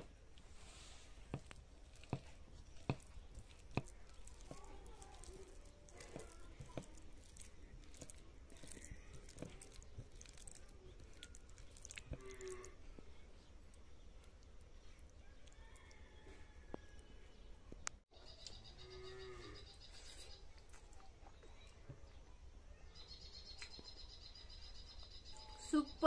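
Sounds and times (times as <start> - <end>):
fingers squishing wet food: 0.0 - 18.6.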